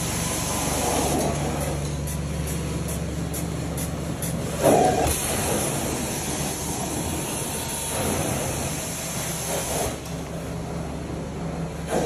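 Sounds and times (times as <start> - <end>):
cleaning machine hum: 0.0 - 12.0
suction hiss: 3.3 - 10.4.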